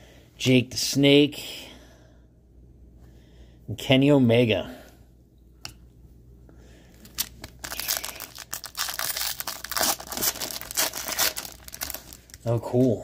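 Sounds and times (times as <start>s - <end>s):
foil wrapper tearing and crinkling: 7.0s - 12.6s.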